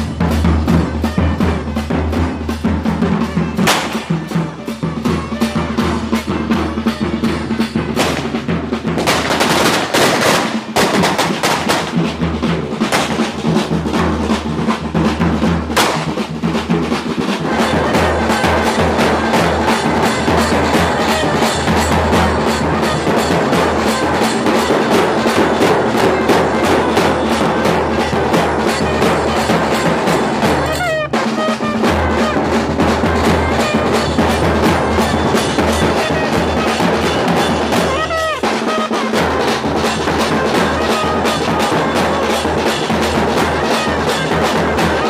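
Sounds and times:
drum band beating fast rhythm: 0.0s - 45.0s
firecrackers banging: 3.2s - 5.3s, 5.9s - 45.0s.

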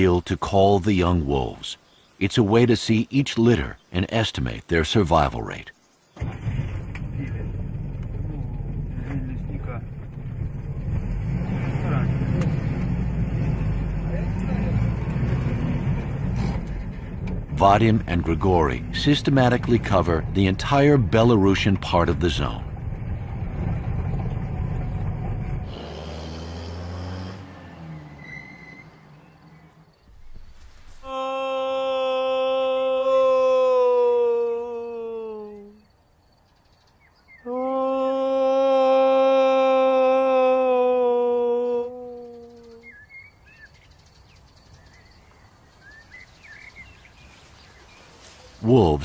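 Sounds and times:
faint birds chirping: 0.0s - 6.4s, 27.9s - 38.4s, 40.4s - 49.0s
vehicle engine and cab rumble: 6.2s - 31.0s
man imitating wolf howl: 31.0s - 35.8s, 37.4s - 43.0s.

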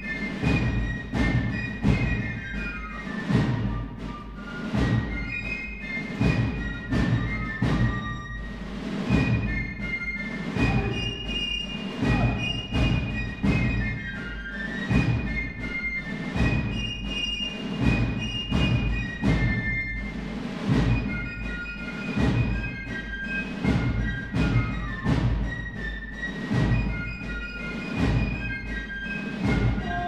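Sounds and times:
military band music: 0.0s - 30.0s
strong drum beat: 0.0s - 30.0s.

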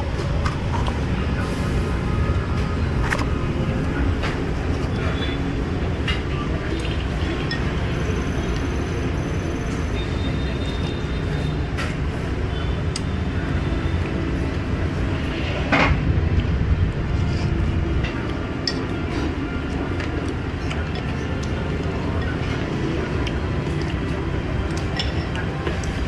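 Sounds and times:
street traffic rumble: 0.0s - 26.0s
rush of noise: 14.4s - 20.0s
chopsticks clinking on bowl: 24.7s - 26.0s.

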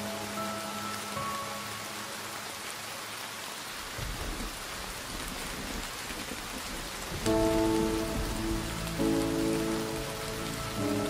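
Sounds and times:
background music: 0.0s - 2.9s, 7.2s - 11.0s
rain falling: 0.0s - 11.0s.

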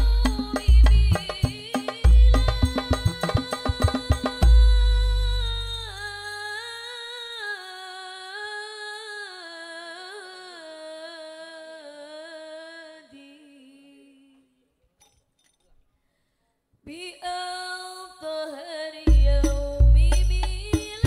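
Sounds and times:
solo voice singing: 0.0s - 14.5s.

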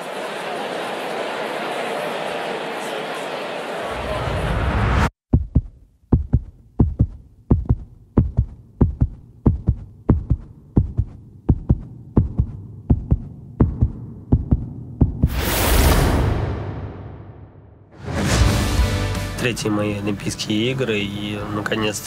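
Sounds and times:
heartbeat thumps: 5.3s - 15.4s
loud rising whoosh: 15.2s - 18.8s.

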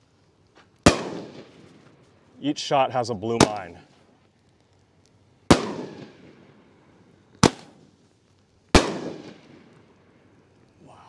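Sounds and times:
firework cake reports echoing: 2.3s - 4.1s.

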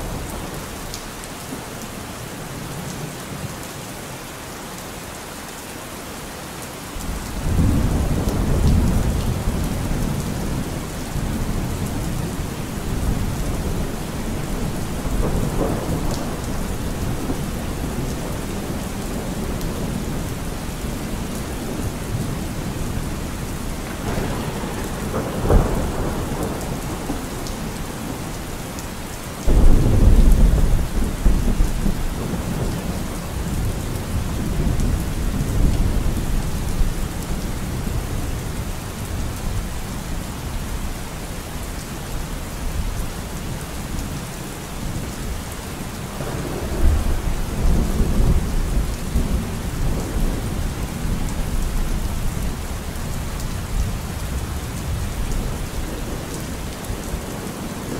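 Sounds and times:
steady rain: 0.0s - 57.9s
thunder rumbling: 7.0s - 39.6s, 46.1s - 52.4s
thunder crack: 23.9s - 27.5s.

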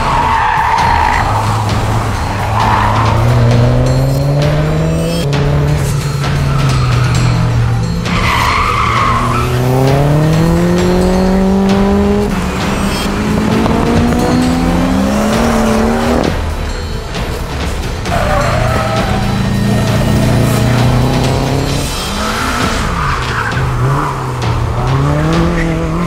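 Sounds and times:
race car engine revving: 0.0s - 16.7s, 17.9s - 26.0s
tyre squeal: 8.1s - 10.1s, 18.1s - 20.7s.

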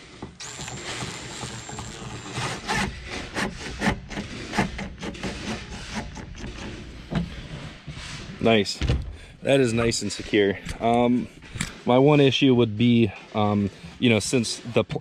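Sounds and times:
cordless drill whining: 0.4s - 3.0s
screw turned by hand: 0.4s - 7.2s.

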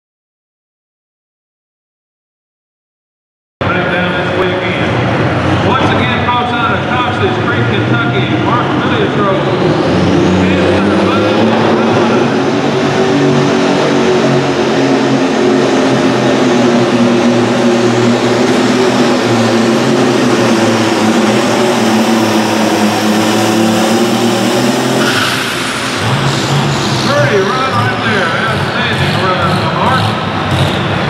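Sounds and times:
tractor engine running under load: 12.6s - 31.0s.

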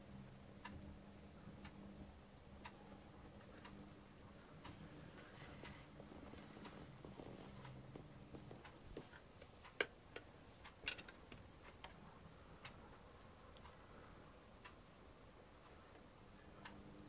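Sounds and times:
faint clicks and taps: 4.6s - 13.8s.

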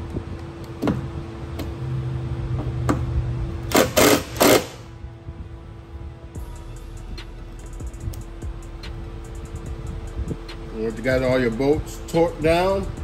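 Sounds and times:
impact driver hammering: 3.7s - 4.8s
impact driver motor whine: 3.7s - 4.9s.

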